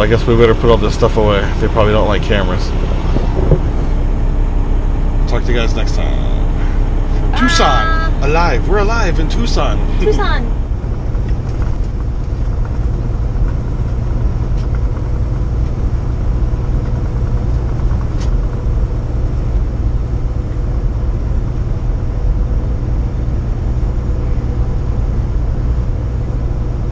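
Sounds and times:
faint steady hum: 0.0s - 17.7s
truck engine and road noise: 0.0s - 26.9s.

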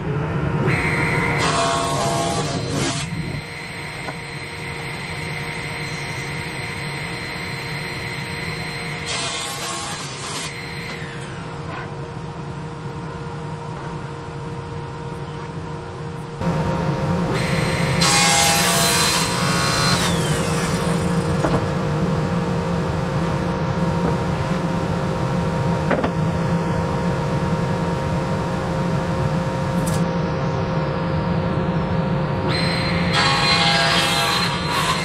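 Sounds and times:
saw cutting wood board: 0.7s - 3.2s, 8.7s - 11.4s, 17.3s - 21.8s, 32.5s - 35.0s
table saw running: 16.4s - 28.7s.

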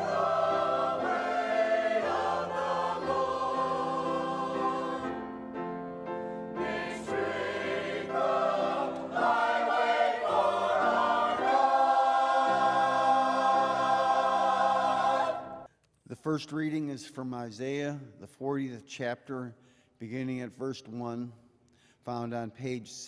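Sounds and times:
choir singing: 0.0s - 15.7s.

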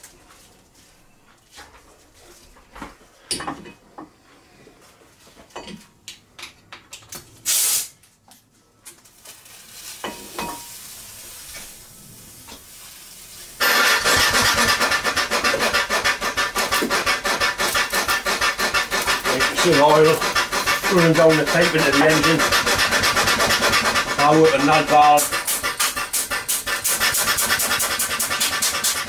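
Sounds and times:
compressed air blast: 7.4s - 8.0s, 13.6s - 29.0s
steam engine exhaust beats: 13.6s - 29.0s.

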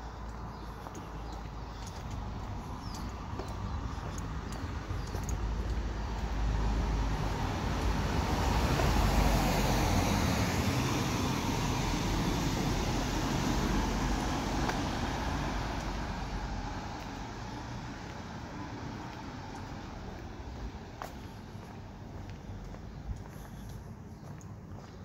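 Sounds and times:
van driving past: 6.3s - 21.0s.

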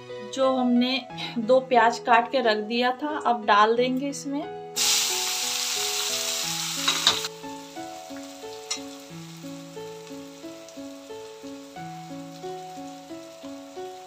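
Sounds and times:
background music: 0.0s - 14.0s
onions sizzling in hot oil: 4.8s - 14.0s.

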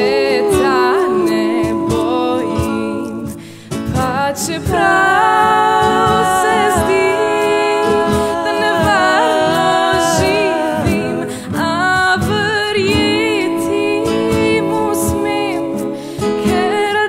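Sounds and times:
person singing: 0.0s - 17.0s
backing music: 0.6s - 17.0s.

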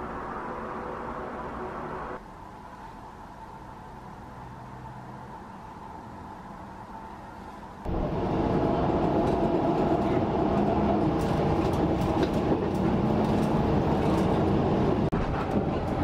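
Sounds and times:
train wheels rumbling on rails: 7.9s - 16.0s.

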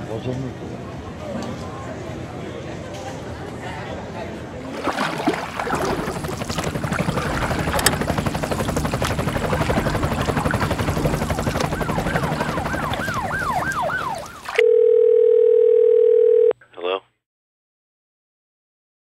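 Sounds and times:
low engine-like pulsing: 5.4s - 14.6s.

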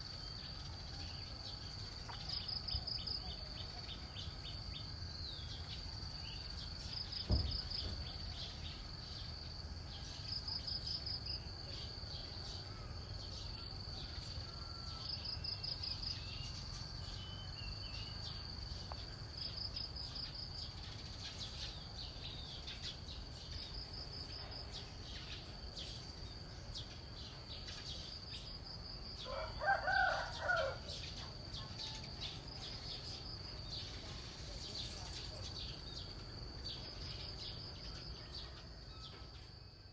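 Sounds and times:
dull thump: 7.2s - 8.1s.

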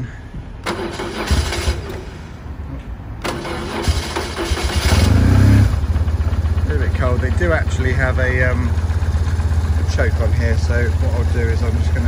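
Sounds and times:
electric starter cranking: 0.6s - 2.2s, 3.2s - 5.6s
motorcycle engine running: 3.8s - 12.0s.

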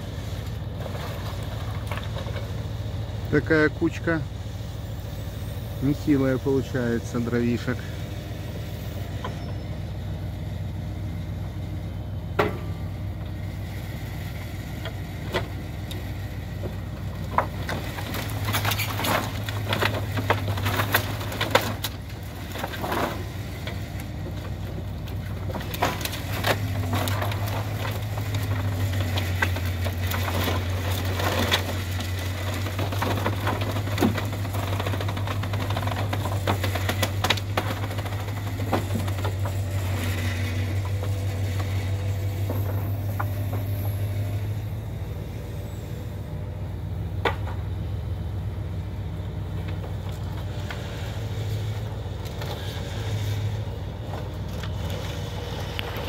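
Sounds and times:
diesel truck engine running: 0.0s - 56.0s
wood offcuts knocking and clattering: 12.4s - 12.8s, 14.8s - 44.3s, 47.2s - 47.8s.

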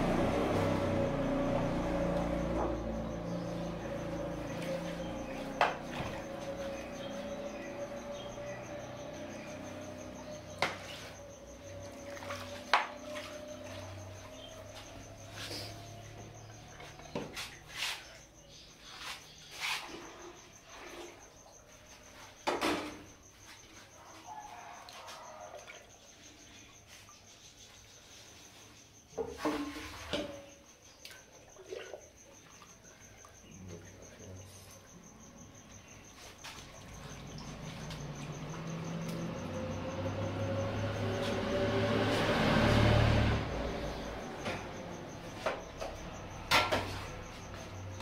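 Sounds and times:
low street rumble: 0.0s - 18.6s, 36.6s - 48.0s.

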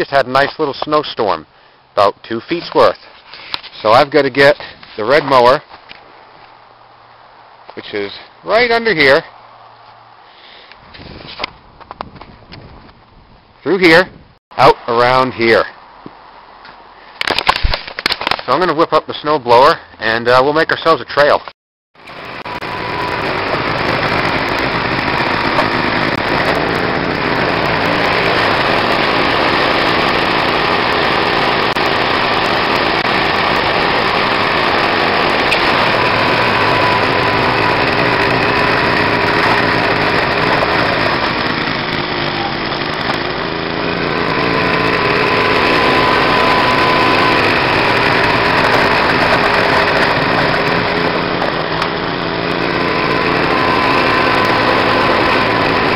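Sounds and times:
snow blower engine running: 22.0s - 55.9s.

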